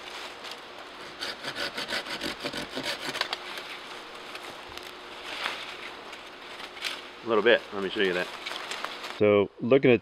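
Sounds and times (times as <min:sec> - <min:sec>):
saw cutting through branch: 0:00.9 - 0:03.7.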